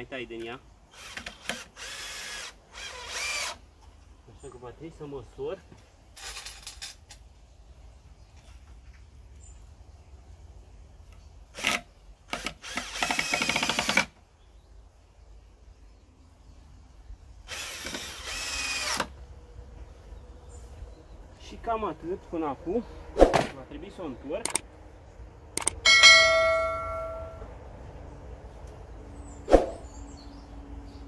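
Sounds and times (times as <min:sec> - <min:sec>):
cordless drill drilling into wood: 0:00.9 - 0:03.6, 0:11.6 - 0:14.1, 0:17.5 - 0:19.1.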